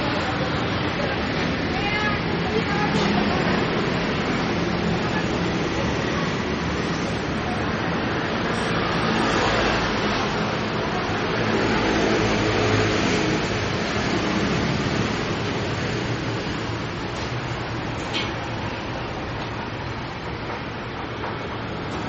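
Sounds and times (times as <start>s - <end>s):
steady street hum: 0.0s - 22.0s
vehicles passing: 0.0s - 22.0s.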